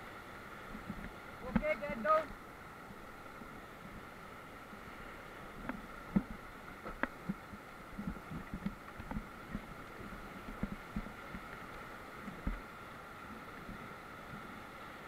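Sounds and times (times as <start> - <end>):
rushing water: 0.0 - 15.0
raft and paddle thumping: 0.7 - 2.3, 5.6 - 11.6, 12.2 - 12.7.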